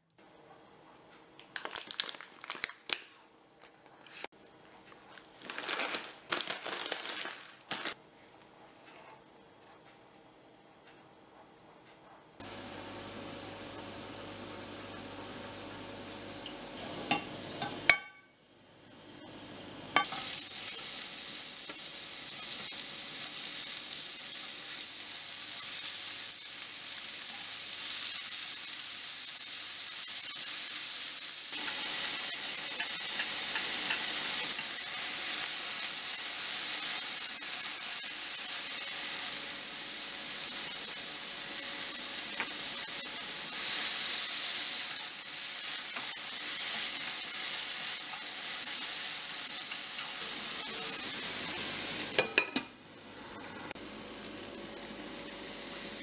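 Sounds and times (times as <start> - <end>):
vegetables sizzling in a frying pan: 12.4 - 56.0.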